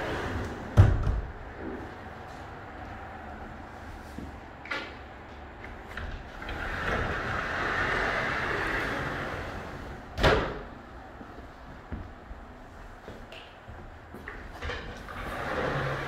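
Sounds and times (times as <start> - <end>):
sliding glass door rolling: 0.0 - 2.3, 4.9 - 11.1, 14.5 - 16.0.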